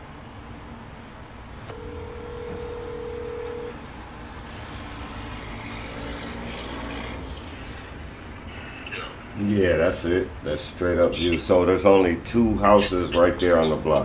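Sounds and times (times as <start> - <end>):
rumble of passing vehicles: 0.0 - 14.0
steady electronic tone: 1.7 - 3.8.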